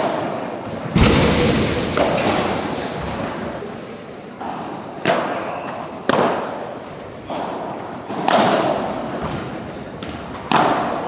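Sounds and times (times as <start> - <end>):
padel rackets hitting ball: 0.0 - 3.6, 6.1 - 6.6, 8.1 - 11.0.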